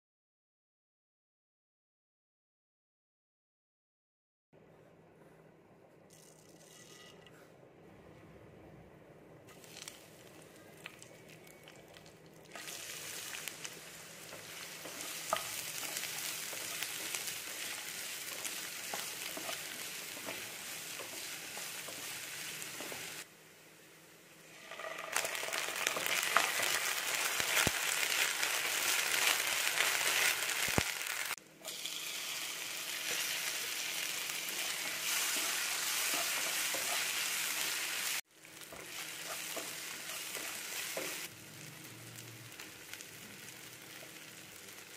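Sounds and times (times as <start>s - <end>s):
food frying in hot oil: 9.5s - 23.3s, 24.5s - 44.9s.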